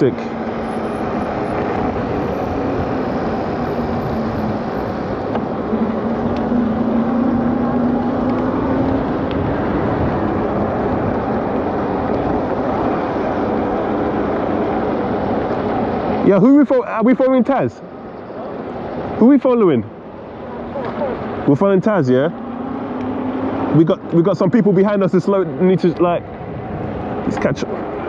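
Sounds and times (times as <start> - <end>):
wind rushing over microphone: 0.0 - 16.3, 24.9 - 28.0
electric bike road noise: 0.0 - 28.0.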